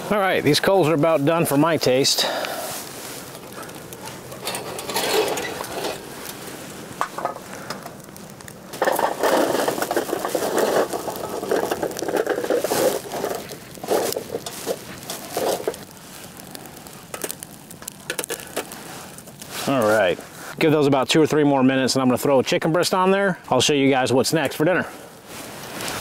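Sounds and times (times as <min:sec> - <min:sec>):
charcoal scraping and clattering: 0:01.4 - 0:08.1, 0:08.7 - 0:20.6.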